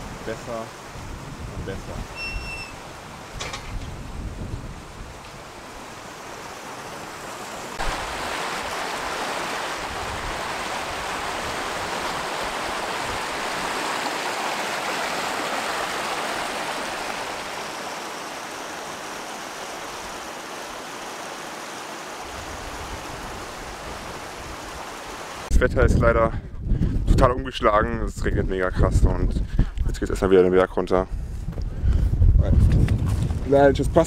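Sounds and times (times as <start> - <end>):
stream running over rocks: 4.9 - 25.5.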